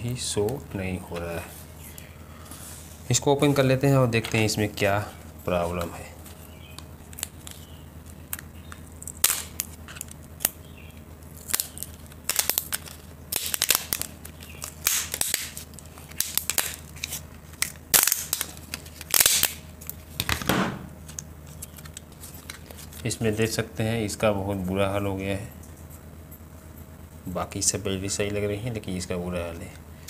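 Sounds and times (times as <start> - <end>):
plastic casing cracking and snapping: 6.7 - 10.6, 11.4 - 23.0.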